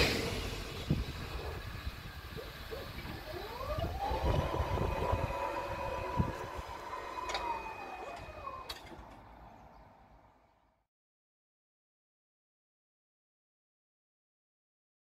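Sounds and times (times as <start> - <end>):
barrier motor whine: 0.0 - 9.3.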